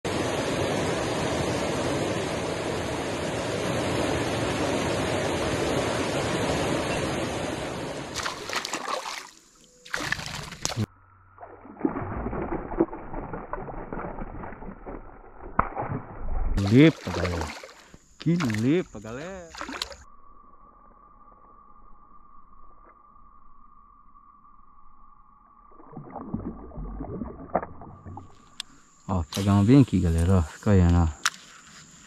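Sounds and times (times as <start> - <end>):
fish splashing at surface: 8.1 - 18.8, 19.4 - 20.0.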